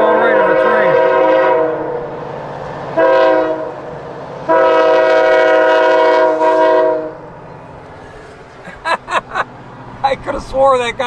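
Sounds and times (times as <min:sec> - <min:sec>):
locomotive air horn blasts: 0:00.0 - 0:02.1, 0:03.0 - 0:03.9, 0:04.5 - 0:07.3.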